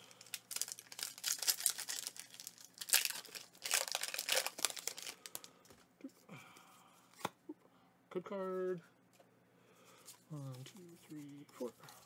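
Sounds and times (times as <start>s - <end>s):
foil wrapper crinkling and tearing: 0.0s - 5.5s.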